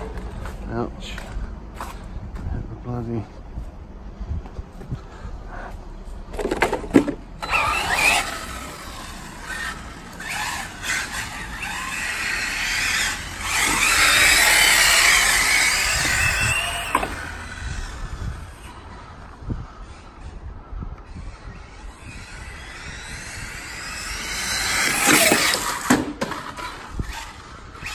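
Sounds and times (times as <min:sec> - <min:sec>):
electric motor whine: 0:07.4 - 0:19.4, 0:21.0 - 0:27.9.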